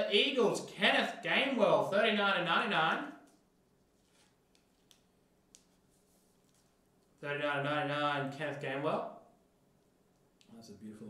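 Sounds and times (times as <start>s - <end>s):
plastic sleeve rustling: 3.2s - 7.1s.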